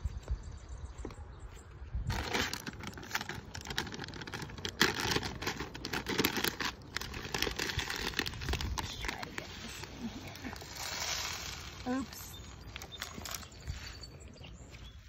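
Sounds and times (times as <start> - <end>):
plastic bag crinkling: 2.1 - 13.7.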